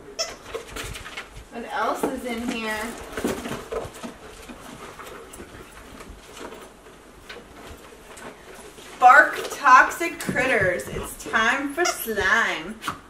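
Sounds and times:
cardboard and paper rustling: 0:00.3 - 0:12.7.

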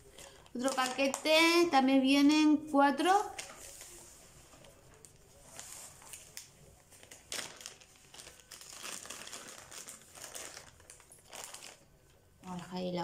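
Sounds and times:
plastic bag crinkling: 0:00.0 - 0:01.4, 0:04.6 - 0:12.8.

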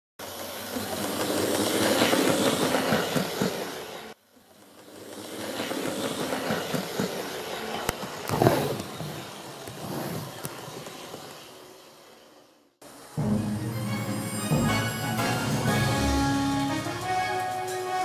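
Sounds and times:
model train wheels rattling on rail: 0:00.2 - 0:12.6.

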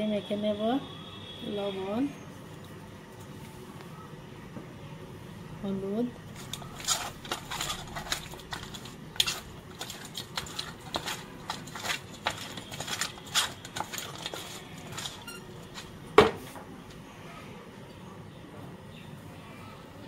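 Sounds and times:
fish slapping in metal bowl: 0:06.3 - 0:16.4.

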